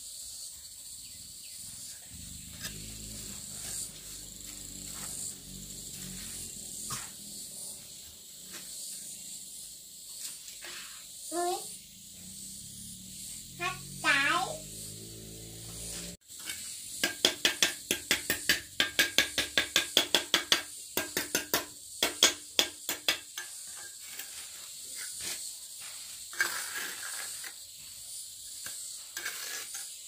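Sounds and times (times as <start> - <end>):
trowel tapping and scraping brick: 16.3 - 24.4, 28.6 - 30.0.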